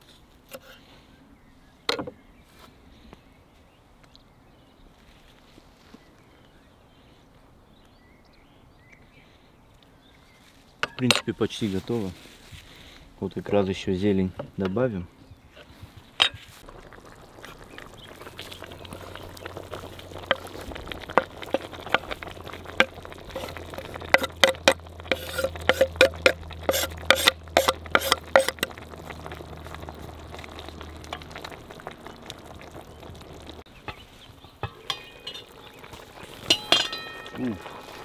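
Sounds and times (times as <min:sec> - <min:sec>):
stew simmering: 0:15.4 - 0:38.0.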